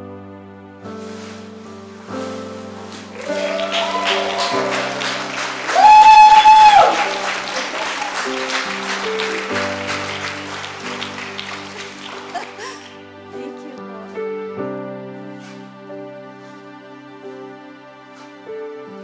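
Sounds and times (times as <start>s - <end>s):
keyboard chords: 1.6s - 15.4s
congregation clapping and cheering: 2.8s - 13.0s
high whoop: 3.1s - 8.5s.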